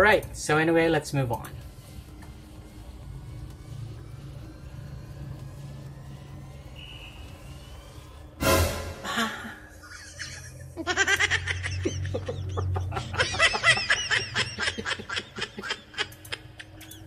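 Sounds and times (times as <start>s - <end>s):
short loud burst: 8.4s - 9.3s
man giggling: 9.0s - 17.0s.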